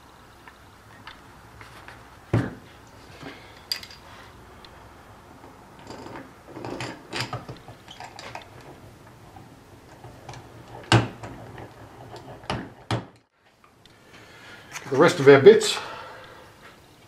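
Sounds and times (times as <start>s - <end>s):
steel parts clicking and knocking: 2.8s - 4.1s, 5.8s - 9.2s.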